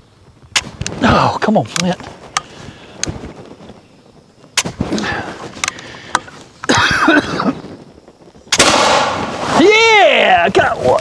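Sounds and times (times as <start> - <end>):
faint clicks: 4.6 - 6.8
rifle shot: 8.5 - 9.6.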